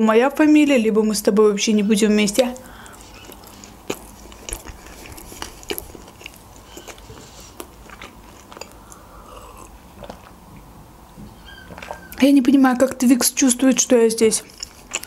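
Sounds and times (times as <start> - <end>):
person chewing food: 2.2 - 12.2, 14.4 - 15.0
person drinking from a glass: 6.6 - 10.4.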